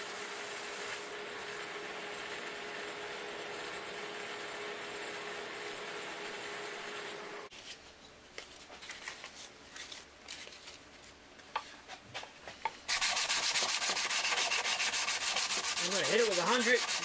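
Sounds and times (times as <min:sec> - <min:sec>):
hand sanding wood: 0:12.9 - 0:17.0
sandpaper crinkling: 0:12.9 - 0:17.0.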